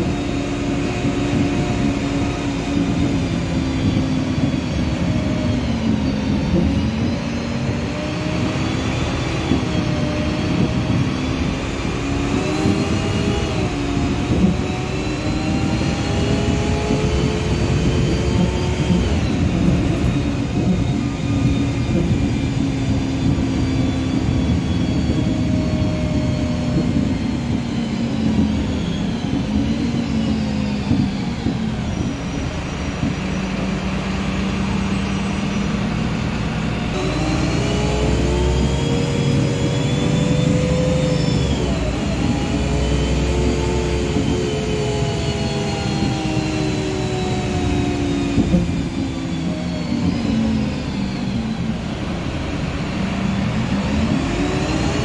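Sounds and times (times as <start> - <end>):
bus engine whine: 0.0 - 55.0.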